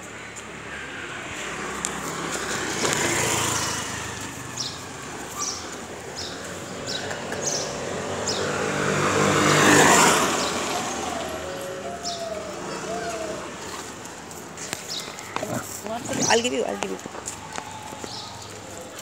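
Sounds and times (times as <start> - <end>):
vehicles passing: 0.0 - 19.0
sandal footsteps on tarmac: 12.6 - 19.0.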